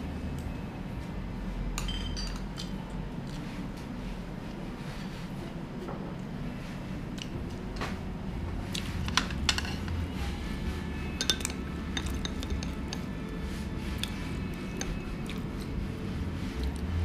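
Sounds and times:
low room hum: 0.0s - 17.0s
tableware clinking: 1.8s - 2.7s, 9.0s - 10.0s, 11.1s - 13.1s.

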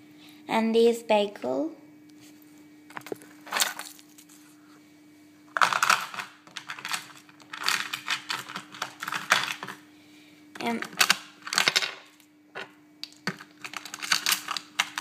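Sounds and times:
clay charms clicking and rattling: 5.6s - 9.8s.

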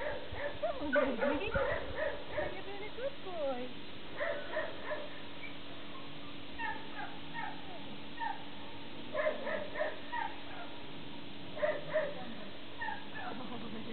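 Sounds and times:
animal squeaking: 6.6s - 8.4s, 12.8s - 13.5s.

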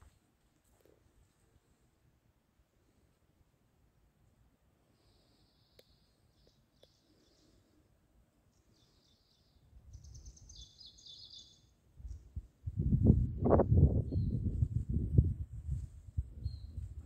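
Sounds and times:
small birds chirping: 5.0s - 7.8s, 8.4s - 12.4s, 16.4s - 16.9s.

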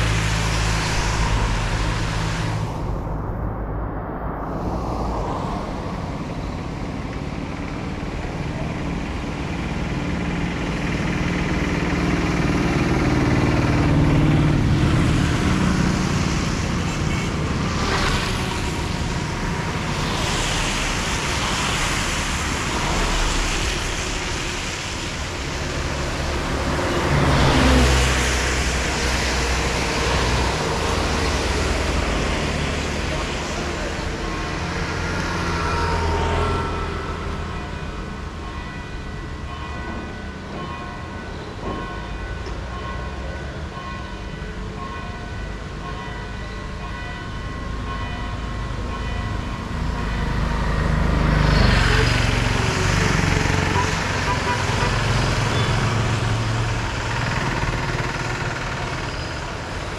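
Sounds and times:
rain hiss: 0.0s - 2.9s, 15.8s - 33.4s
vehicles passing on wet road: 0.0s - 44.3s, 47.0s - 59.9s.

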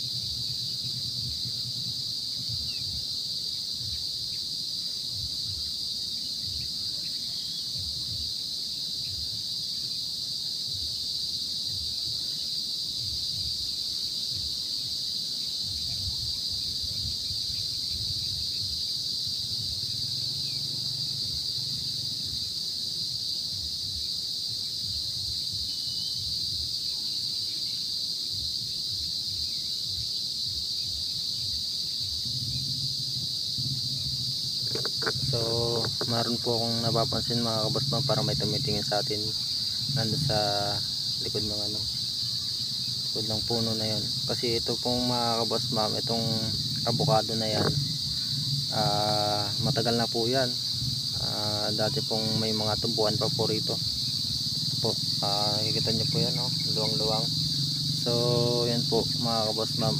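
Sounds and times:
insects droning: 0.0s - 59.9s
low uneven rumble: 32.0s - 59.9s.

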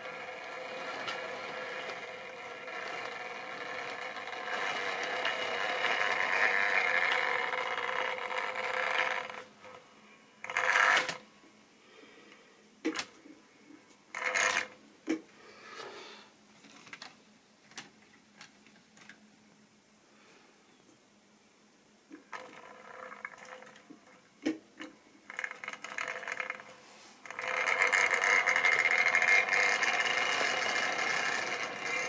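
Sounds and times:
scraping rattles: 0.0s - 9.5s, 25.3s - 32.0s
model train motor whining: 0.0s - 9.8s, 10.4s - 11.2s, 14.1s - 14.7s, 25.3s - 32.0s.

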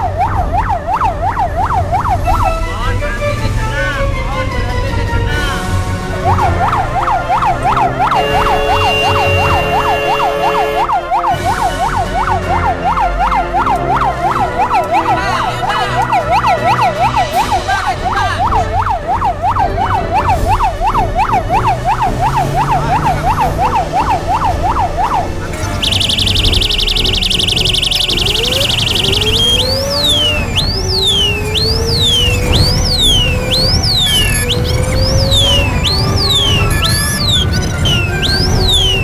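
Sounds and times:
fire truck siren yelping: 0.0s - 39.0s
truck engine rumble: 0.0s - 39.0s.

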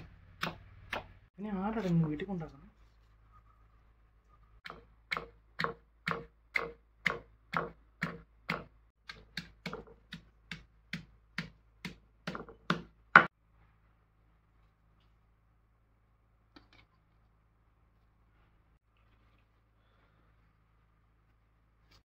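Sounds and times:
stone pestle pounding in mortar: 0.0s - 1.1s, 4.6s - 13.3s.

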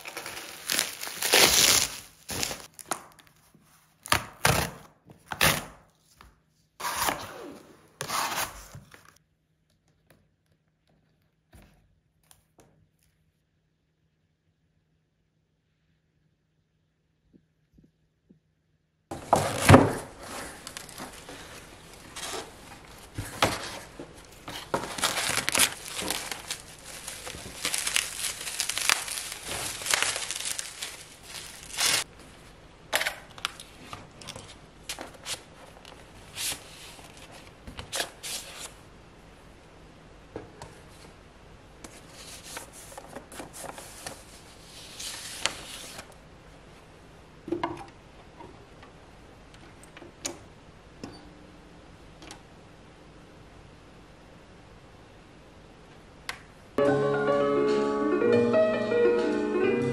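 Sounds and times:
wrapping crinkling and tearing: 0.0s - 3.5s, 19.4s - 32.1s.

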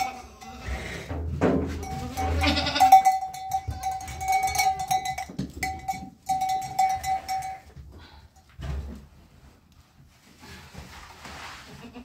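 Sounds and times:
livestock bell clanking: 0.0s - 8.5s.

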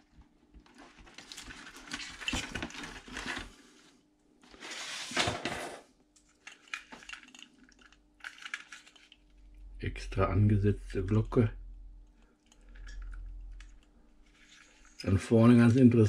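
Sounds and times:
rustling and scraping of box: 0.7s - 3.8s, 4.5s - 5.8s
light clicks of model handling: 6.2s - 9.4s.

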